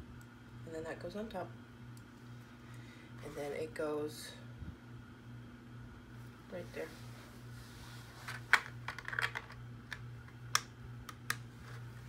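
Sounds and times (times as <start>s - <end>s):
plastic bricks clicking: 8.5s - 9.6s.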